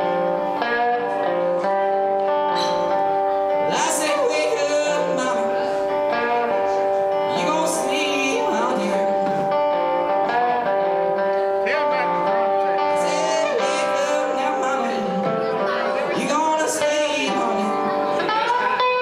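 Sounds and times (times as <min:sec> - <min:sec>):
electric guitar playing blues: 0:00.0 - 0:19.0
man singing: 0:03.6 - 0:09.4, 0:11.5 - 0:19.0.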